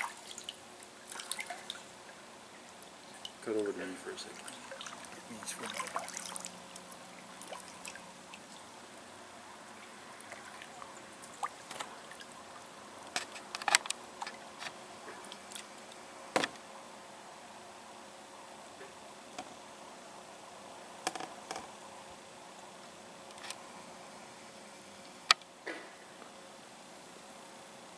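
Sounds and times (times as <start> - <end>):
water dripping and splashing: 0.0 - 3.5, 4.1 - 8.7, 9.8 - 13.4.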